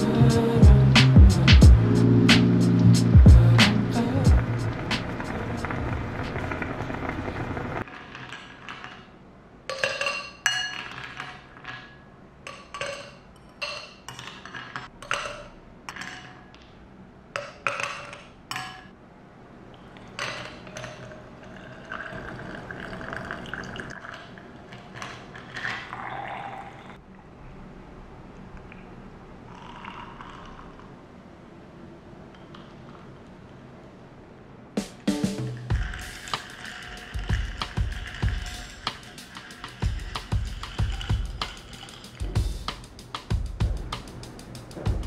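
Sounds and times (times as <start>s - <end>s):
liquid pouring over ice: 20.0s - 27.0s
moka pot sputtering: 35.7s - 42.6s.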